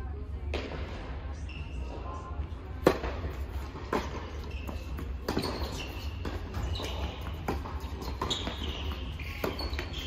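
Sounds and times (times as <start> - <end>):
sneakers squeaking on court: 1.4 - 10.0
ball bouncing: 2.8 - 10.0
racket hitting tennis ball: 2.8 - 10.0.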